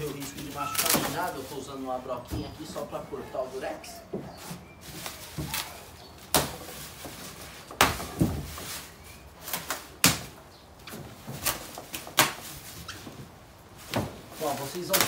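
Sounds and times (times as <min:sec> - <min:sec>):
bubble wrap sharp cracks: 0:00.0 - 0:01.5, 0:11.3 - 0:12.8, 0:14.6 - 0:15.0
bubble wrap rustling and crackling: 0:00.0 - 0:15.0.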